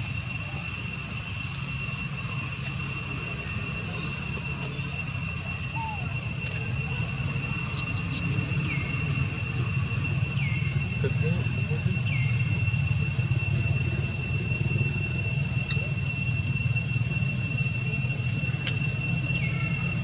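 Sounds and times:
high-pitched insect drone: 0.0 - 20.0
low steady rumble: 0.0 - 20.0.

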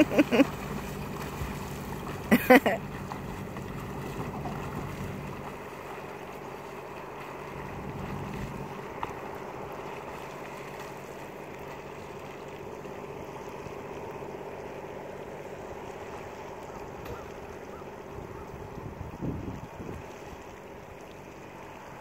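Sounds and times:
wind noise on microphone: 18.0 - 20.4.

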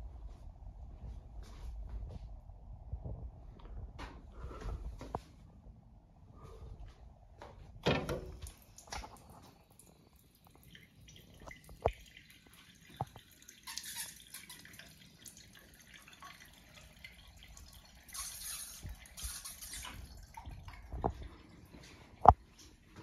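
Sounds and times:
water running down trough: 8.2 - 22.7
water dripping: 8.2 - 23.0.

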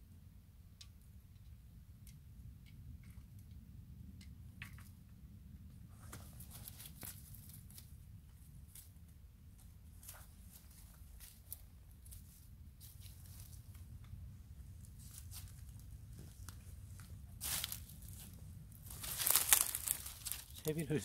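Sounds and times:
steady low rumble: 0.1 - 21.0
dry reed stems crackling: 6.3 - 7.9, 14.8 - 20.9.

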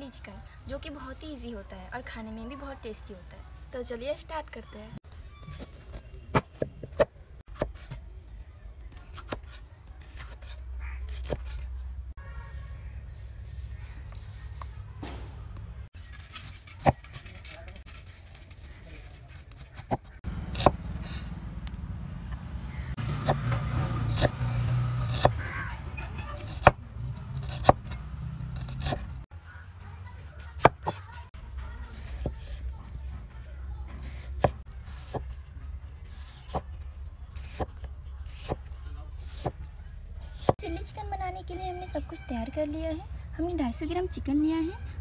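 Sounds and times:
cleaver chopping on wooden board: 25.0 - 25.4, 27.4 - 28.0.

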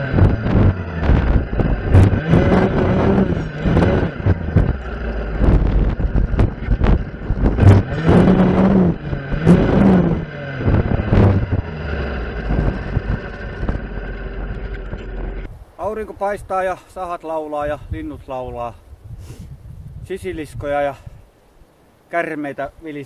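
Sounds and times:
clearing saw engine revving: 0.0 - 15.5.

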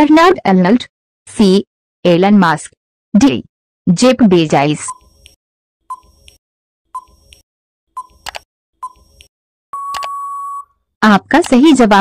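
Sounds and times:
long steady beep: 9.7 - 10.7
short beeps: 9.8 - 10.7.

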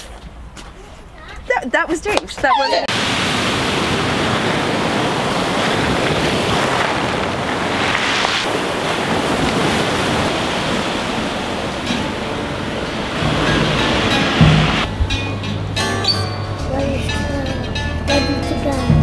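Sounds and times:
wind buffeting microphone: 1.4 - 15.9
surf washing over shingle: 2.9 - 15.0.

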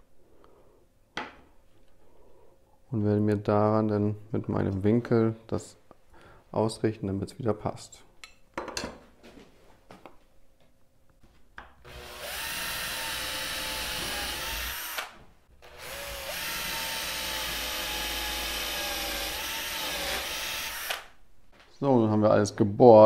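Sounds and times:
cordless drill boring through wood: 11.8 - 21.2.

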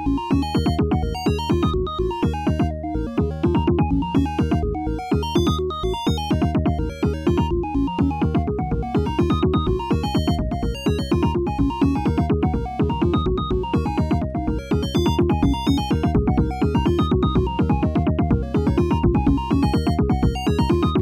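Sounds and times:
low synth bass notes: 6.4 - 21.0.

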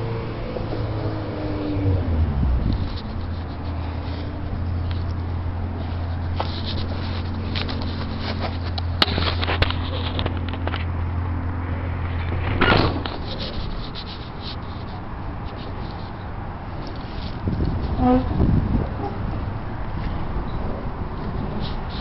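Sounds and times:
camera handling rustle: 2.8 - 11.0, 12.1 - 17.7.

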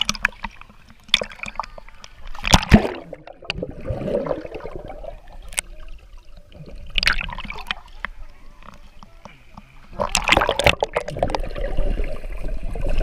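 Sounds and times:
pool water splashing: 0.0 - 13.0
underwater gurgling and bubbling: 0.0 - 13.0
loud splash: 2.4 - 5.0.

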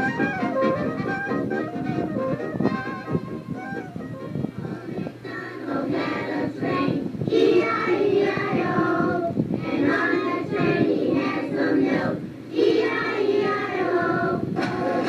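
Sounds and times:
musical accompaniment: 0.0 - 5.4
voices singing: 4.4 - 15.0.

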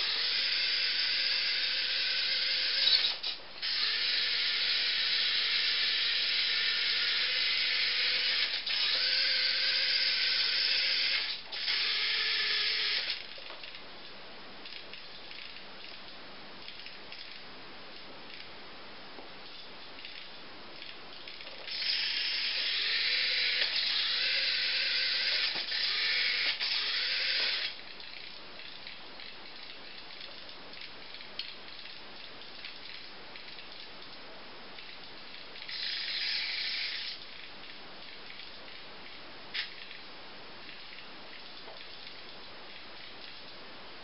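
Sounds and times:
small electric motor and gears: 0.0 - 13.3, 21.5 - 27.8, 35.6 - 37.2.

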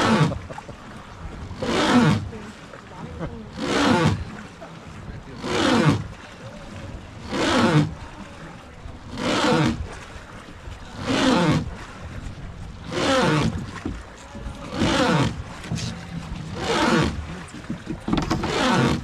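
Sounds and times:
oar creaking: 0.0 - 19.0
oar stroke rushing water: 0.0 - 19.0.

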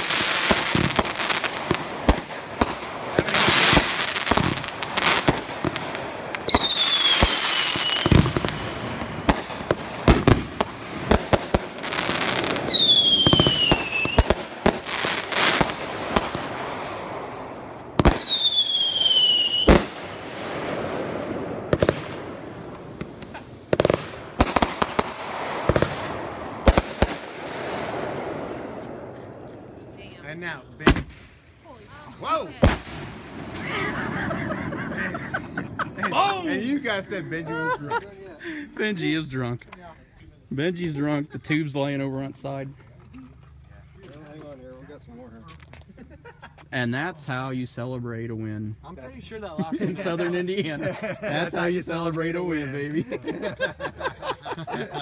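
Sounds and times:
fireworks bangs and crackling: 0.0 - 31.4, 32.2 - 37.0
whistling firework shells: 6.4 - 8.8, 12.6 - 14.4, 18.0 - 20.0.

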